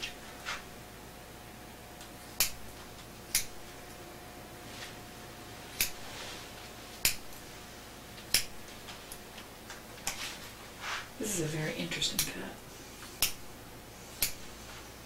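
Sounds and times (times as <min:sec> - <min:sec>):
faint hum: 0:00.0 - 0:15.0
scissors snipping hair: 0:02.0 - 0:03.6, 0:05.8 - 0:06.0, 0:07.0 - 0:07.5, 0:08.2 - 0:09.2, 0:12.0 - 0:12.4, 0:13.1 - 0:13.4, 0:14.1 - 0:14.5.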